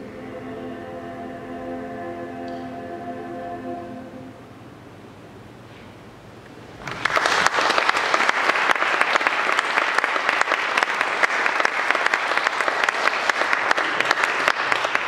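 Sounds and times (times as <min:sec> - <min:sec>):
audience applauding: 0:06.8 - 0:15.0.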